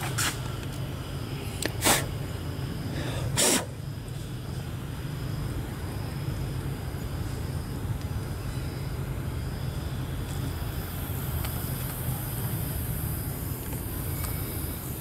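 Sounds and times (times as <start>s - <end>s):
steady low hum: 0.0s - 15.0s
short hissy bursts: 1.8s - 2.1s, 3.4s - 3.8s.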